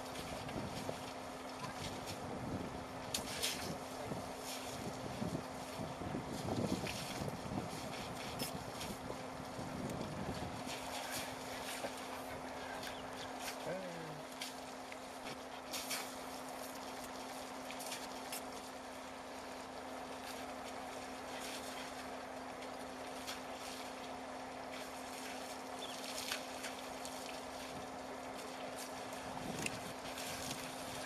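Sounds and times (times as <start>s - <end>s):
elephants splashing water: 0.0s - 31.0s
steady low hum: 0.0s - 31.0s.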